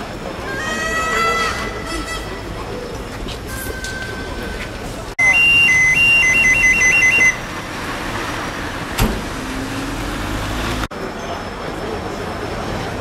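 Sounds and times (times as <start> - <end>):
street noise: 0.0 - 13.0
faint low vehicle hum: 1.9 - 13.0
two-tone siren: 5.2 - 7.4.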